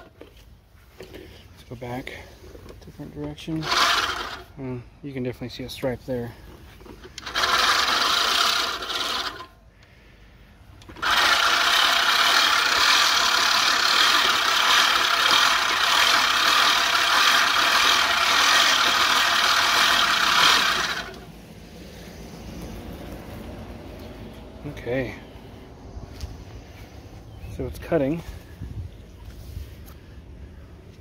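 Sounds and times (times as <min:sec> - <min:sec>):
reel mower blades whirring: 0:00.0 - 0:01.4, 0:02.4 - 0:04.7, 0:06.4 - 0:09.6, 0:10.7 - 0:25.0.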